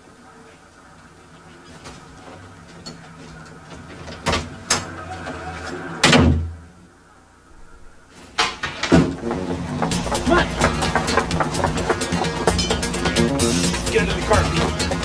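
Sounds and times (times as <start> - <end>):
heavy door closing with thud: 6.0 - 6.6, 8.5 - 10.4.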